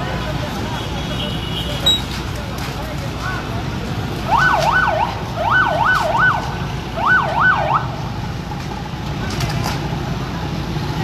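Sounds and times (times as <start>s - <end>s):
low traffic rumble: 0.0s - 11.0s
vehicle siren wailing: 4.3s - 8.0s.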